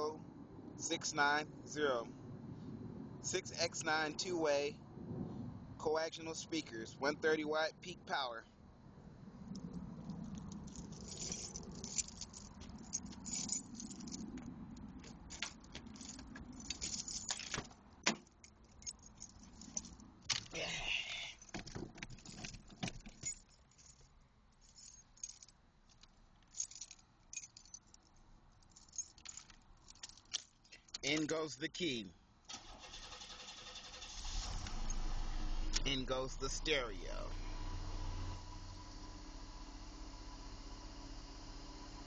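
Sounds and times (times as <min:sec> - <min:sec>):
handling clicks and rattles: 0:09.5 - 0:20.6, 0:21.3 - 0:31.4
keys jangling: 0:09.5 - 0:31.4.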